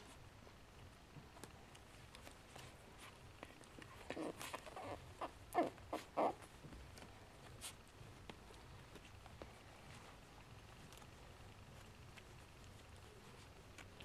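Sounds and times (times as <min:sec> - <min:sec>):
faint rustling: 0:00.0 - 0:14.0
puppy squeaks and grunts: 0:04.0 - 0:06.5.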